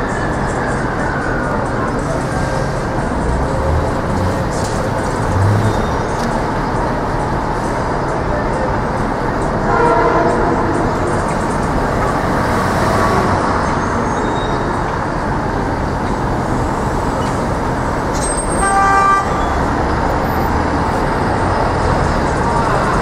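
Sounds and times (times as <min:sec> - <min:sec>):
traffic engine and tyre noise: 0:00.0 - 0:23.0
vehicle horn toot: 0:09.7 - 0:10.7, 0:18.4 - 0:19.6.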